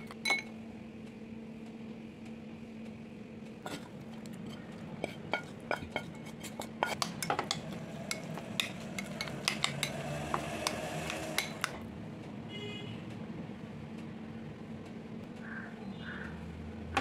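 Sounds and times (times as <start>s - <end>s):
metal spoon clinking on pan: 0.0s - 0.5s, 4.5s - 11.8s.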